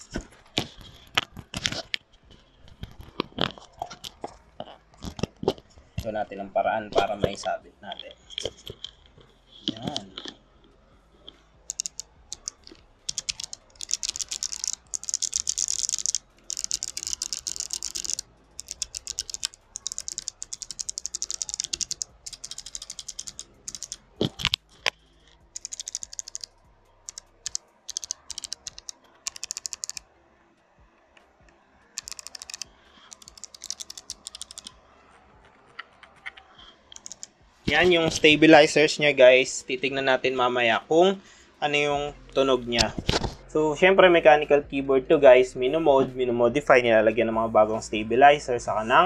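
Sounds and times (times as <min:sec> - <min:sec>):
mechanical keyboard typing: 0:11.6 - 0:30.1, 0:32.0 - 0:34.8, 0:35.8 - 0:37.8.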